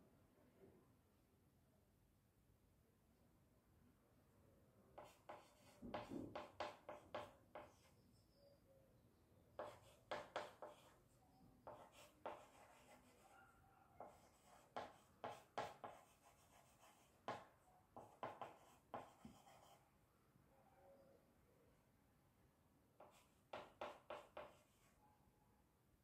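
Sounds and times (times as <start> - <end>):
chalk tapping and scraping on blackboard: 5.0 - 7.9, 9.6 - 11.0, 11.6 - 13.3, 14.0 - 19.8, 23.0 - 24.9.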